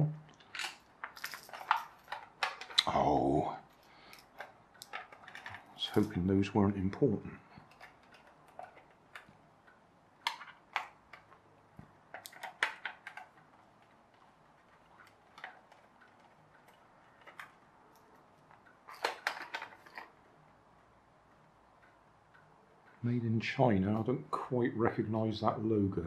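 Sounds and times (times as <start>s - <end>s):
plastic toy car handled: 0.4s - 6.3s, 7.5s - 9.4s, 10.2s - 20.2s.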